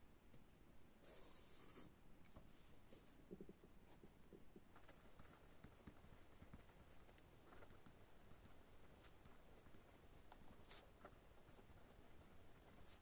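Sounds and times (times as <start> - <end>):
pen scratching on paper: 4.8 - 13.0.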